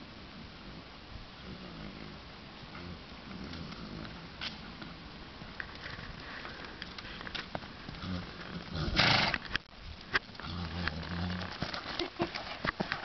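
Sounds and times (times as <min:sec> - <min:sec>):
steady hiss: 0:00.0 - 0:13.0
horse trotting and breathing: 0:02.7 - 0:13.0.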